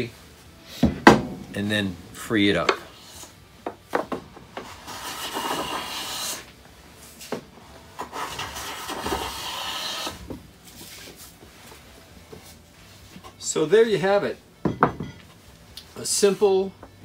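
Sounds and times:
hand plane shaving wood: 0:04.7 - 0:06.5, 0:08.0 - 0:10.2.

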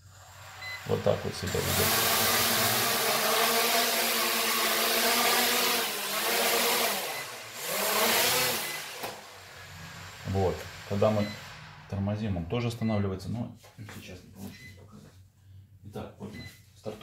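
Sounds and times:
drone propellers whirring: 0:01.6 - 0:12.0.

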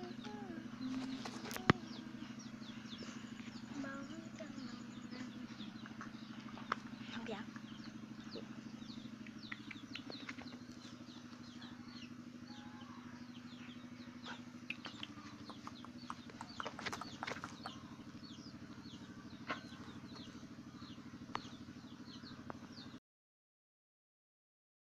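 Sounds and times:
low pulsing hum: 0:00.0 - 0:23.0
small birds chirping: 0:00.0 - 0:23.0
sharp clicks: 0:09.2 - 0:10.8, 0:14.7 - 0:17.7.

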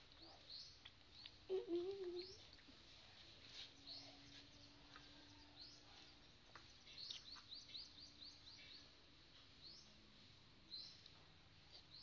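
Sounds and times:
bird chirps: 0:03.8 - 0:08.9.

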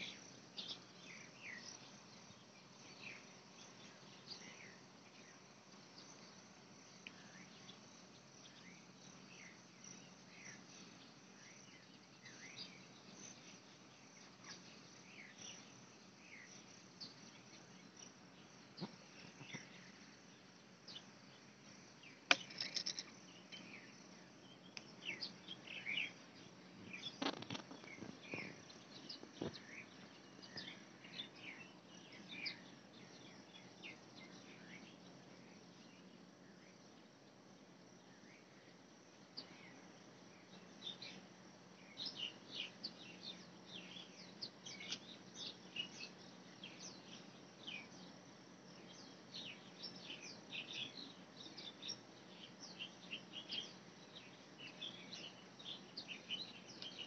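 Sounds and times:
faint steady hum: 0:00.0 - 0:57.0
small birds chirping: 0:00.0 - 0:57.0.

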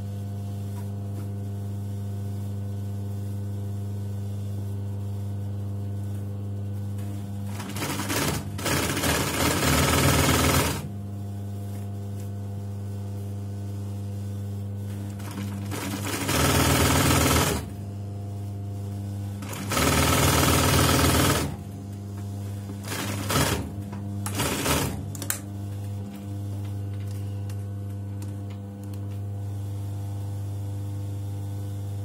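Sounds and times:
low electrical hum: 0:00.0 - 0:09.4, 0:10.7 - 0:19.8, 0:21.2 - 0:32.0
electric sewing machine stitching: 0:07.5 - 0:10.9, 0:15.1 - 0:17.8, 0:19.4 - 0:21.6, 0:22.8 - 0:25.2.

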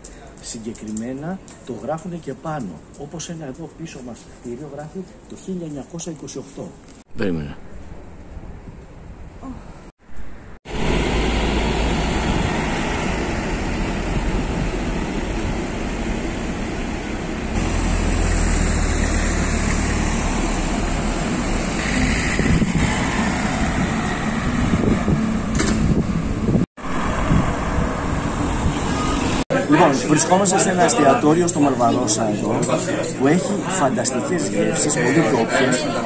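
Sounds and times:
rumble of passing traffic: 0:07.7 - 0:36.0.

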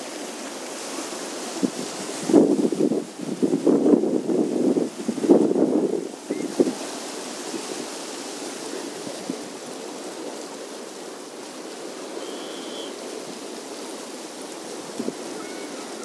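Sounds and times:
sea water lapping against rocks: 0:00.0 - 0:16.0
short high chirp: 0:12.2 - 0:12.9.

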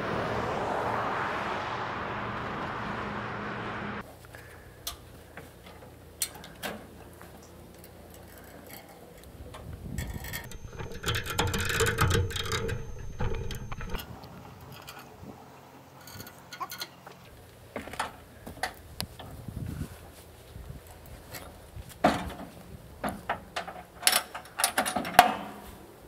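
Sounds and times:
clicks and metal knocks: 0:10.0 - 0:14.0
irregular metallic rattling: 0:10.3 - 0:14.0
steady rushing noise: 0:10.5 - 0:14.0.

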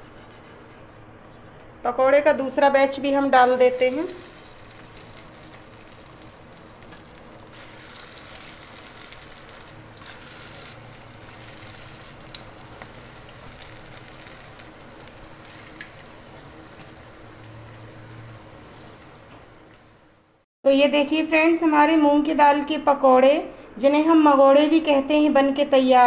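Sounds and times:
food deep-frying in hot oil: 0:03.3 - 0:20.1
small crackles in oil: 0:03.8 - 0:17.2.

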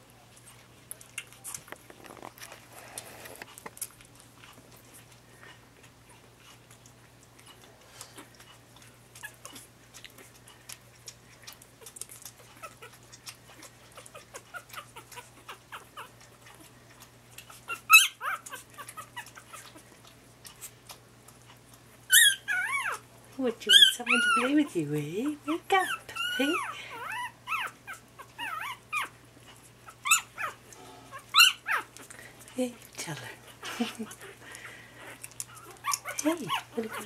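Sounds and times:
puppies scrabbling on bedding: 0:00.3 - 0:05.2
puppy squeaks: 0:17.5 - 0:19.8, 0:22.1 - 0:23.0, 0:23.7 - 0:24.7, 0:25.8 - 0:29.2, 0:29.8 - 0:31.9, 0:35.5 - 0:37.0
puppy high yelp: 0:17.7 - 0:19.7, 0:22.1 - 0:23.0, 0:25.8 - 0:29.1, 0:29.8 - 0:31.9.

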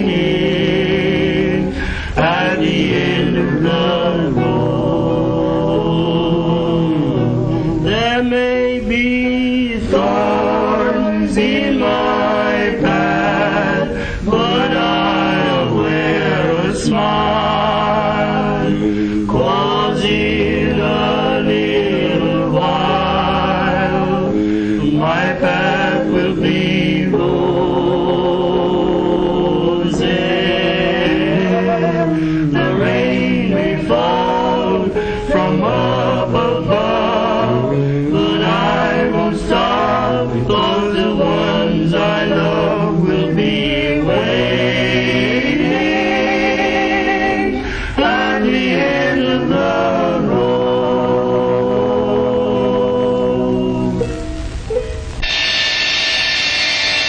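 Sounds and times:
men singing in harmony: 0:00.0 - 0:54.3.

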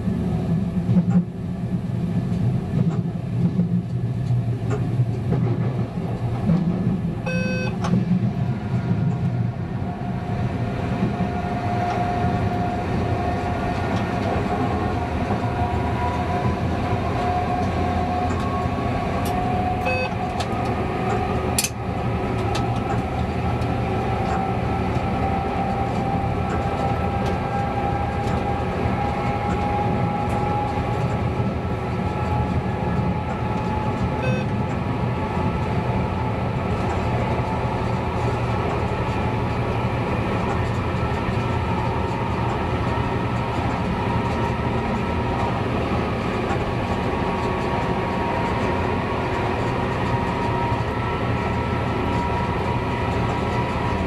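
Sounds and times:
railcar engine and rail noise: 0:00.0 - 0:54.0
short beeps: 0:07.3 - 0:07.8, 0:19.8 - 0:20.2, 0:34.2 - 0:34.5.

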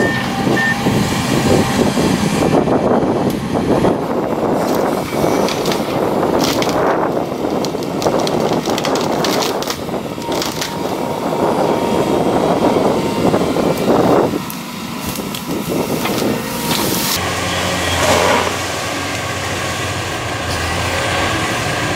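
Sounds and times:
excavator running: 0:00.0 - 0:21.9
tree trunk cracking and snapping: 0:04.6 - 0:11.2, 0:14.5 - 0:17.2.

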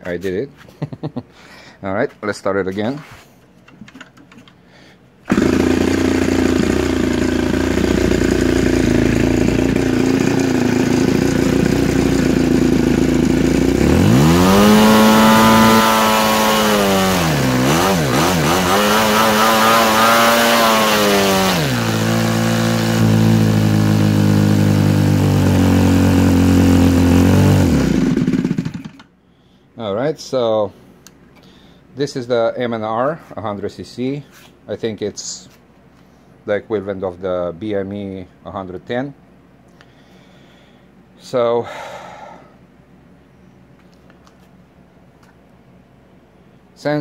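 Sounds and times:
model airplane engine revving: 0:05.3 - 0:29.1.

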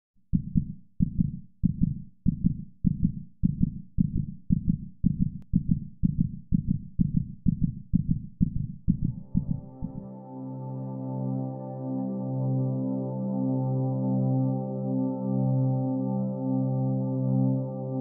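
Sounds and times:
heartbeat thumps: 0:00.3 - 0:10.0.

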